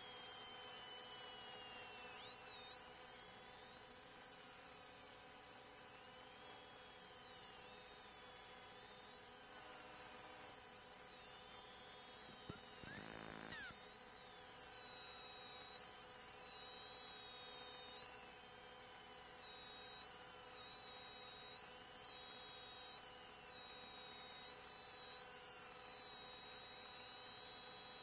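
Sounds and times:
faint electronic hum: 7.0 - 15.8
high whistling tones: 12.4 - 13.8.

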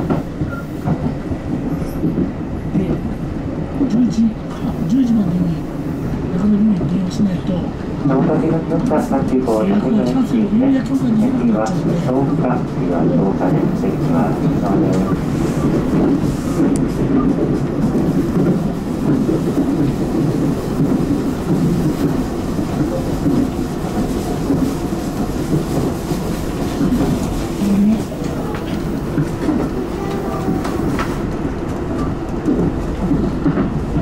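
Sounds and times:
train wheels rumbling on rail: 0.0 - 34.0
faint wheel squeal on rail: 0.4 - 0.8.

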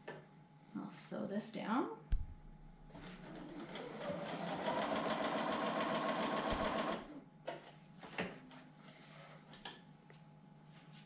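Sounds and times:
sewing machine stitching: 3.0 - 7.2.

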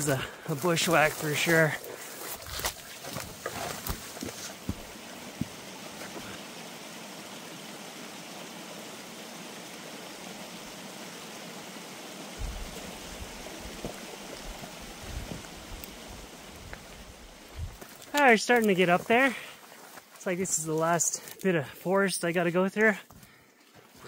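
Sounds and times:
creek running over rocks: 0.0 - 24.0
low thumps: 12.4 - 15.8.

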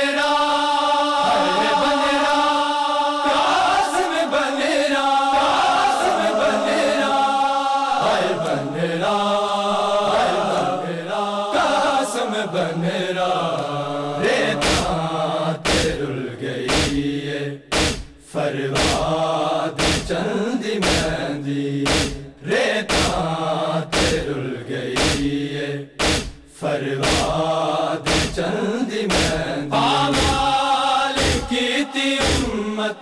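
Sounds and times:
men chanting in unison: 0.0 - 33.0
sharp thumps: 16.7 - 17.0, 17.7 - 18.2, 18.8 - 19.1, 19.8 - 20.1, 20.8 - 21.1, 21.9 - 22.2, 25.0 - 25.3, 26.0 - 27.3, 28.1 - 28.4.

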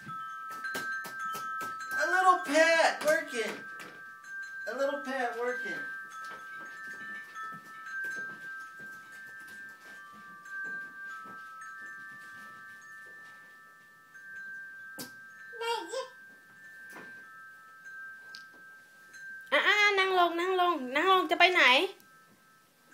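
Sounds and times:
high chime-like tones: 0.0 - 22.9
baby babbling: 15.6 - 16.2.

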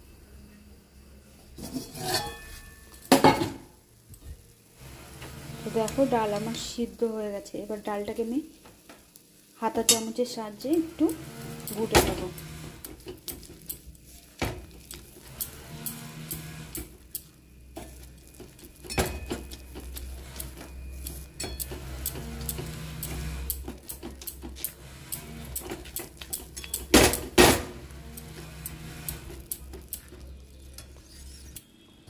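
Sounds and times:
metal spoon scraping a pot: 1.6 - 2.8, 10.7 - 13.9, 14.8 - 26.9, 27.7 - 31.8.

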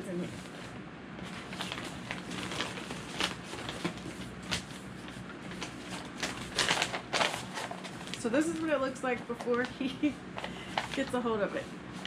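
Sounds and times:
wrapping paper rustling: 0.3 - 12.0.

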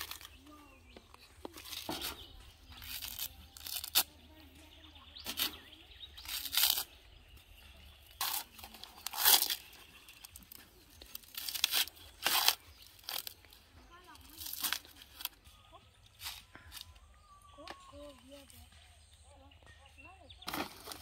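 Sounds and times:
coconut husk ripping: 0.0 - 0.4, 1.6 - 4.2, 5.2 - 6.9, 8.1 - 13.6, 14.2 - 15.4.

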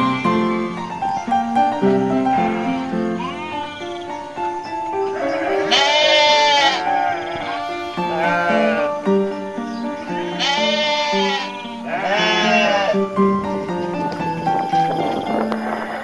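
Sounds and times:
background music: 0.0 - 16.0
goat bleating: 2.4 - 4.1, 5.1 - 9.0, 10.0 - 13.1.

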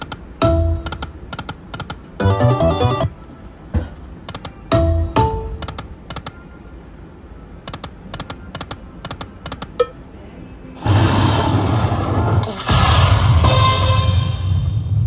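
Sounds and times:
slot machine reels ticking: 0.0 - 3.2.

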